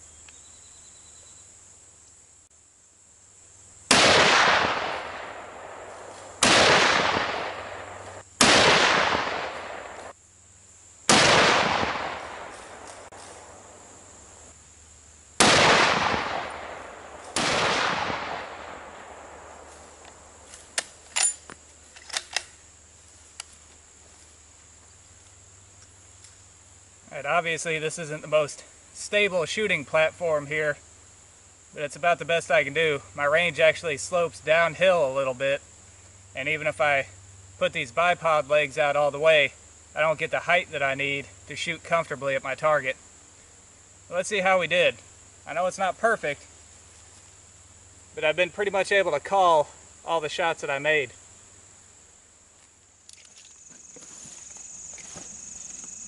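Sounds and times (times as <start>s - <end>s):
rifle shots: 3.9s - 10.1s, 11.1s - 13.6s, 15.4s - 19.6s.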